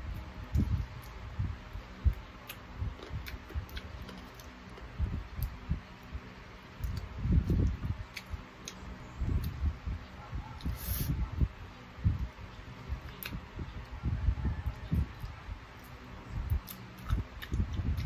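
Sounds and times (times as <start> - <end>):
wet chewing and sucking: 15.0 - 18.0.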